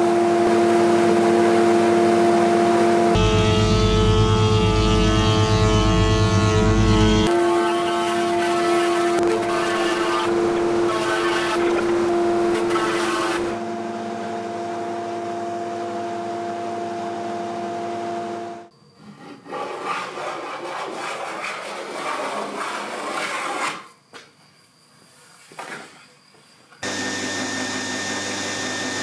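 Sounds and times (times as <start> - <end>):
steady machine hum: 0.0 - 7.4, 8.9 - 18.7
hand tool rubbing on wood: 19.0 - 23.9.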